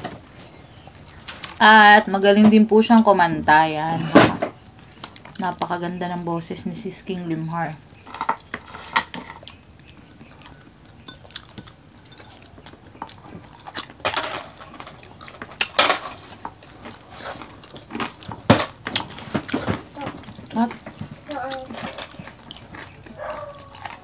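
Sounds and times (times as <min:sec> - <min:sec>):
chewing crispy food: 0:00.0 - 0:02.1, 0:04.6 - 0:06.2, 0:07.9 - 0:24.0
dishes clattering: 0:08.1 - 0:09.5, 0:11.0 - 0:17.0.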